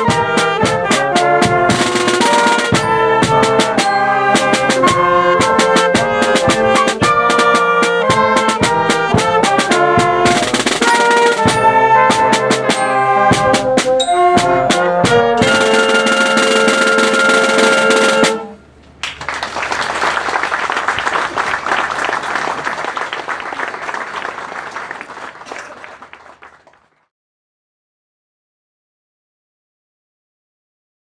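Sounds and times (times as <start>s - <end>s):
wind band playing chords: 0.0s - 26.5s
applause: 19.0s - 27.1s.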